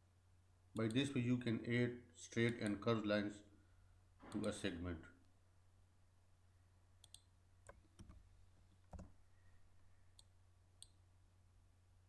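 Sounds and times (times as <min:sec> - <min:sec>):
computer mouse clicks: 0:02.5 - 0:02.8, 0:04.3 - 0:04.6, 0:07.0 - 0:08.2, 0:10.1 - 0:11.0.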